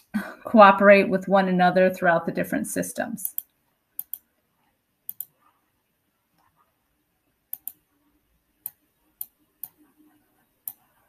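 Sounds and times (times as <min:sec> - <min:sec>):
computer control clicks: 0:03.2 - 0:04.2, 0:05.1 - 0:05.3, 0:07.5 - 0:07.8.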